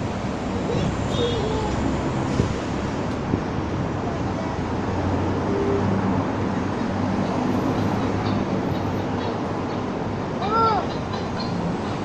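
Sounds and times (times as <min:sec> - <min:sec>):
city street traffic rumble: 0:00.0 - 0:12.0.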